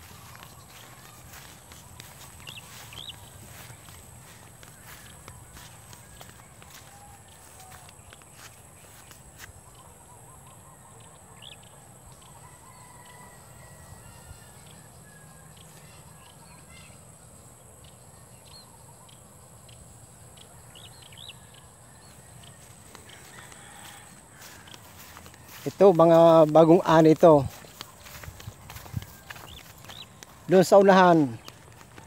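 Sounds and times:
bird chirps: 0.0s - 12.6s, 27.4s - 31.8s.

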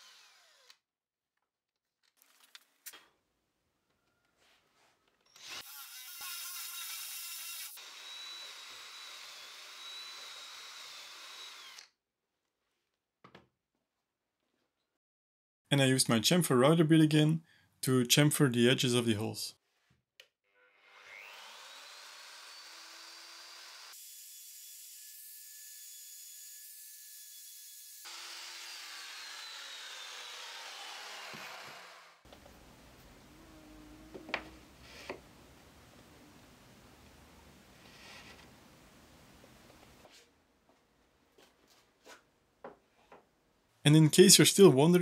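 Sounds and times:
drill bit cutting wood: 0.0s - 0.8s, 5.3s - 11.9s, 21.0s - 24.0s, 28.0s - 32.2s
power drill motor whine: 0.0s - 0.8s, 7.8s - 11.9s
router whining: 0.0s - 0.8s, 7.6s - 11.9s, 20.9s - 24.0s, 28.1s - 35.4s.

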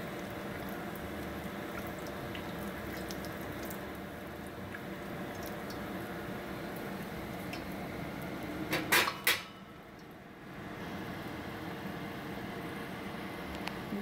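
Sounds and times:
food sizzling in hot oil: 0.0s - 9.6s.

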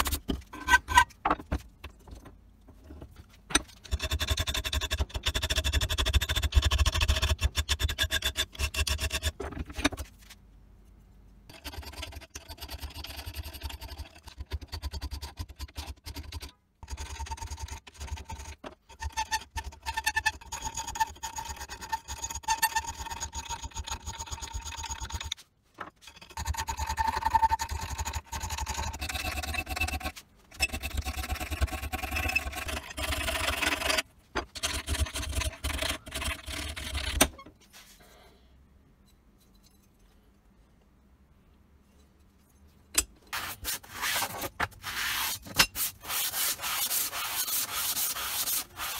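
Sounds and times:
files rasping on steel: 43.3s - 48.9s.

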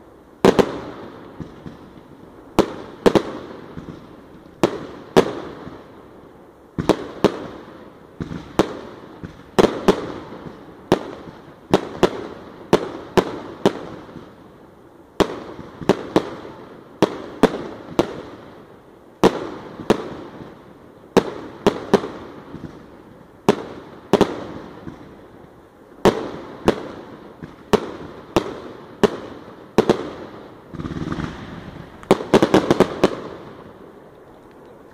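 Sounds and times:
firework bangs with crackle: 0.0s - 6.1s, 6.7s - 14.6s, 15.2s - 34.0s.

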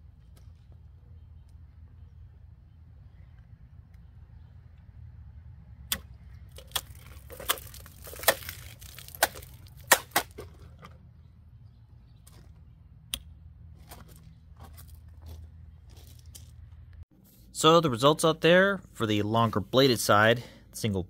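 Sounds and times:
knife cracking plastic bottle: 5.9s - 10.7s
plastic bottle crinkling: 6.5s - 10.9s.

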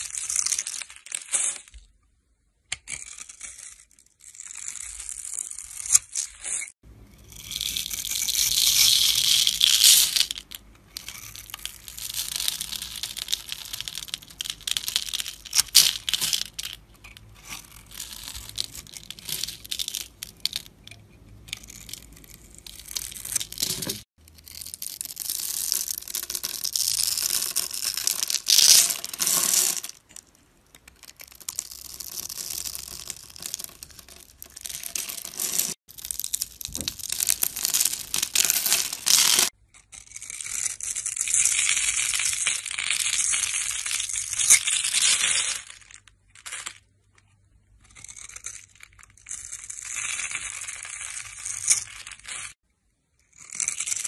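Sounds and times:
soap cubes crunching and crackling: 0.0s - 1.7s, 2.7s - 52.6s, 53.2s - 54.0s.

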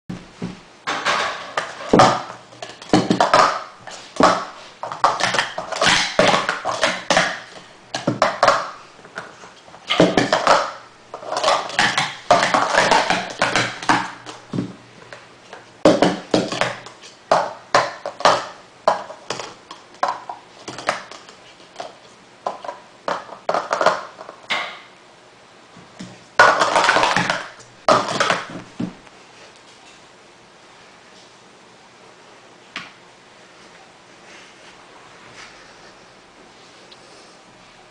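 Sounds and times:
plastic cups clattering: 0.9s - 24.8s, 26.0s - 29.0s.

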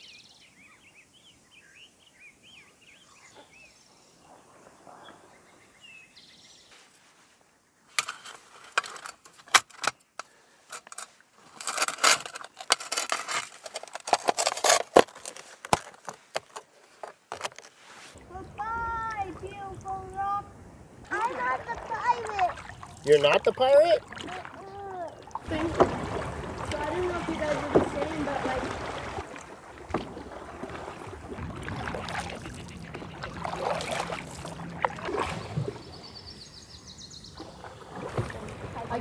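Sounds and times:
small birds chirping: 0.0s - 6.9s, 21.1s - 25.4s, 31.8s - 37.8s
metal plates clinking and rattling: 10.7s - 15.4s.

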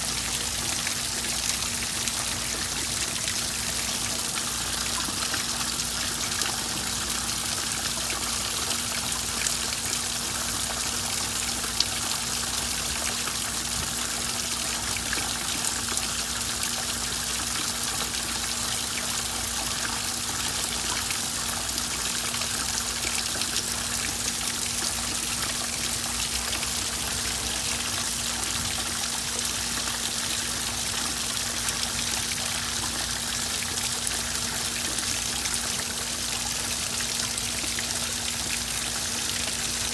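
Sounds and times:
water trickling and splashing: 0.0s - 39.9s.

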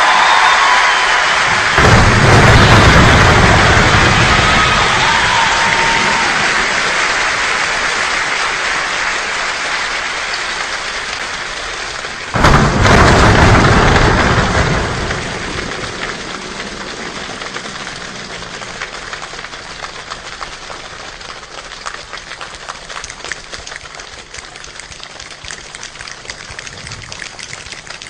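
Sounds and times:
rain-like body percussion patter: 1.4s - 28.0s
thunder-like crash: 1.5s - 7.4s, 12.3s - 19.8s.

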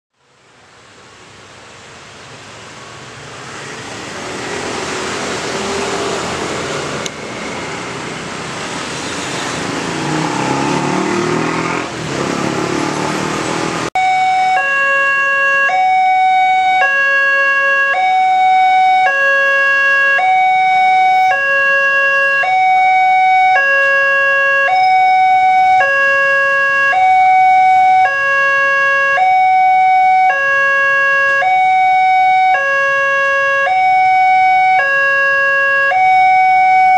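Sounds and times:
motorcycles and cars passing: 2.4s - 14.0s
level crossing two-tone alarm: 14.0s - 36.9s.

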